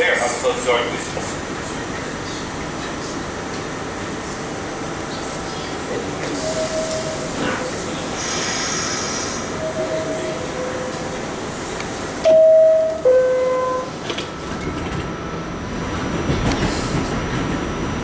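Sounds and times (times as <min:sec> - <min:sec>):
train motors and wheels rumbling: 0:00.0 - 0:18.0
two-tone door chime: 0:12.2 - 0:13.9.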